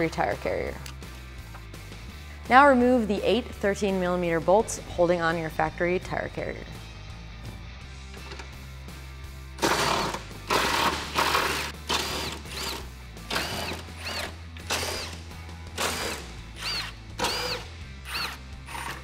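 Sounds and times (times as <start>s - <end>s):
quiet background music: 0.0s - 19.0s
impact driver motor whine: 15.8s - 19.0s.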